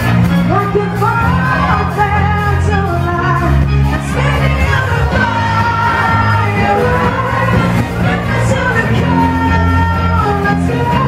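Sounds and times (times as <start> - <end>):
amplified singing: 0.0 - 11.0
live pop-rock band playing: 0.0 - 11.0
crowd shouting: 4.3 - 9.8.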